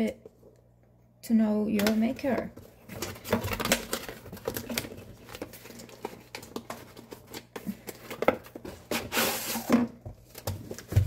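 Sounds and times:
cardboard packaging handled: 0:01.8 - 0:11.0
paper insert rustling and scraping: 0:02.6 - 0:11.0.

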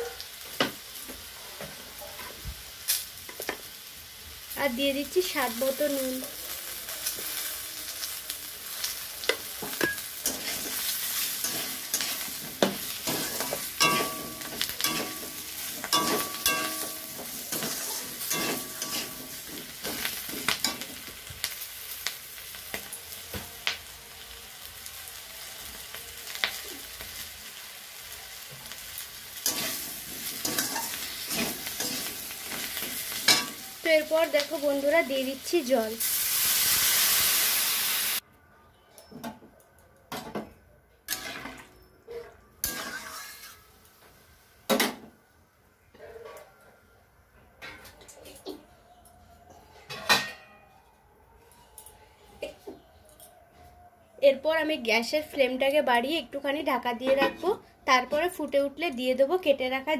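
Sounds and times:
potato wedges sizzling in oil: 0:00.0 - 0:38.2, 0:42.6 - 0:44.5
metal spatula scraping pan: 0:09.6 - 0:20.8, 0:29.4 - 0:33.6, 0:41.1 - 0:43.7.

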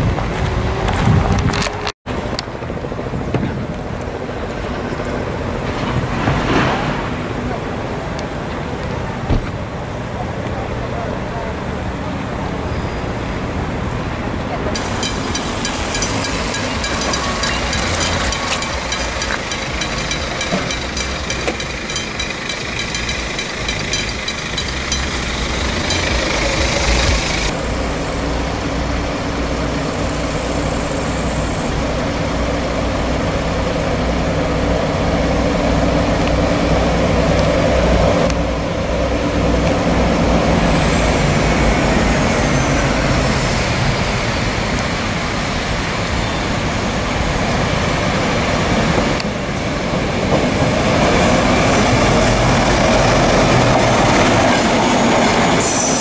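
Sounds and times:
diesel locomotives running: 0:00.0 - 0:56.0
level-crossing warning bell: 0:14.7 - 0:33.6.

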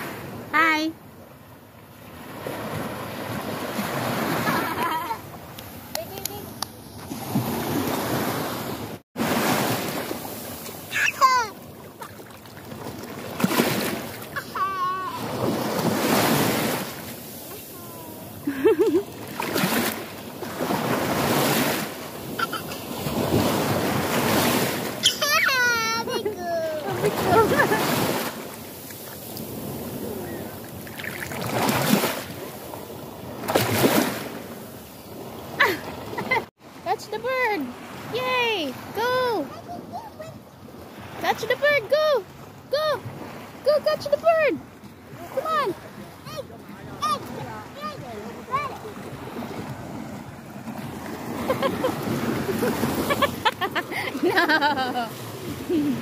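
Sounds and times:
sea waves washing on shore: 0:01.8 - 0:56.0
child's high-pitched vocal sounds: 0:10.9 - 0:11.6, 0:14.4 - 0:15.4, 0:17.6 - 0:18.4, 0:25.0 - 0:27.0.

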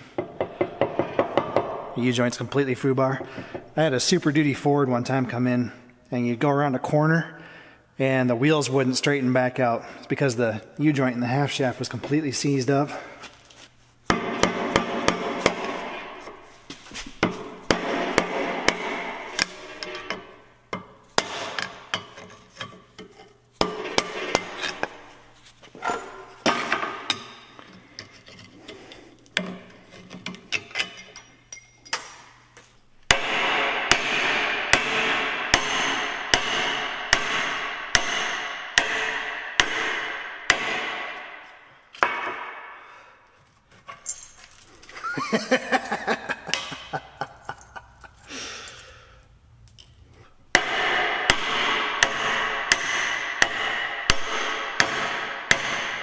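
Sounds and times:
hammer striking steel: 0:14.1 - 0:16.4, 0:17.2 - 0:22.1, 0:23.6 - 0:25.0, 0:33.1 - 0:42.8, 0:46.4 - 0:47.3, 0:50.5 - 0:56.0.

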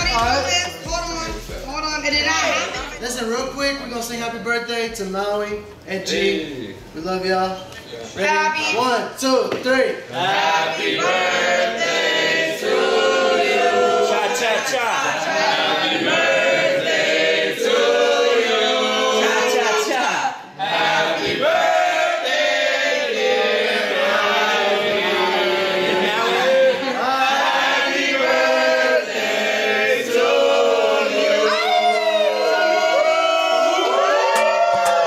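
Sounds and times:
group of people singing: 0:10.1 - 0:32.9.

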